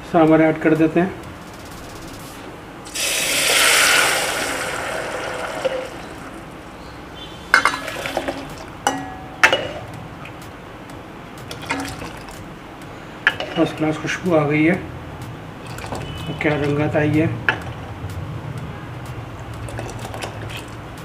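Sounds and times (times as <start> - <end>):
liquid sizzling in hot fat: 2.8 - 6.6
ladle clinking against pot: 7.5 - 9.9, 11.5 - 12.4, 13.3 - 13.8.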